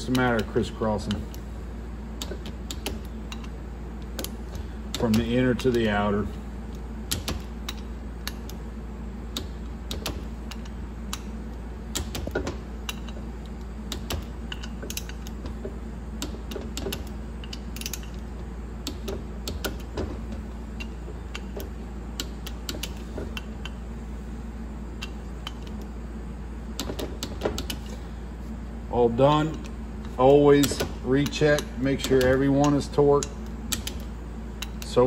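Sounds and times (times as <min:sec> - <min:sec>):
steady low hum: 0:00.0 - 0:35.0
torque wrench ratcheting and clicking: 0:16.2 - 0:18.2.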